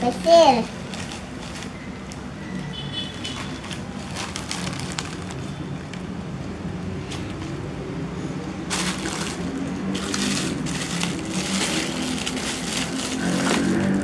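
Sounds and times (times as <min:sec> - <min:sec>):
plastic bag crinkling: 0:00.8 - 0:01.8, 0:03.2 - 0:06.0, 0:08.6 - 0:14.0.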